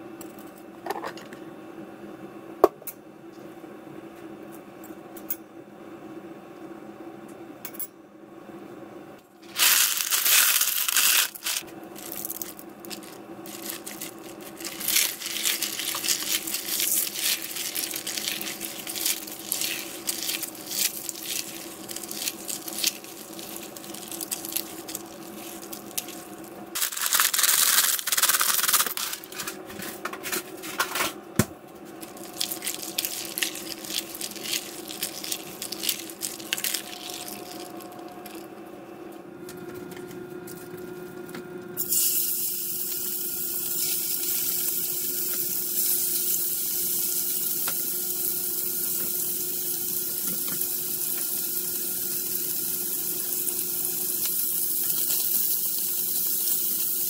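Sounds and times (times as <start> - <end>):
steady hum: 0.0 - 55.1
dry noodles and packaging crinkling: 9.4 - 29.5, 32.0 - 38.4.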